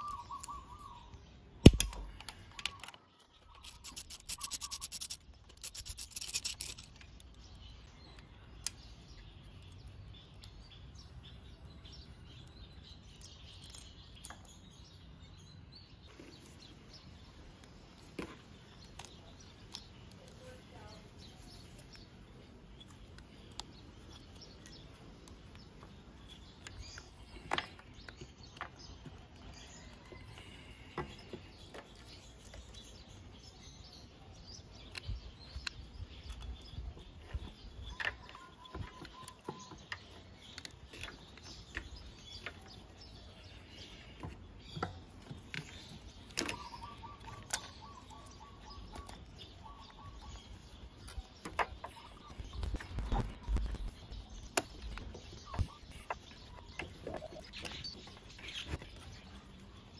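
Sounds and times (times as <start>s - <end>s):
birds chirping: 0.0s - 59.9s
faint clicks of metal parts: 1.6s - 10.8s, 12.3s - 14.8s, 17.5s - 33.2s.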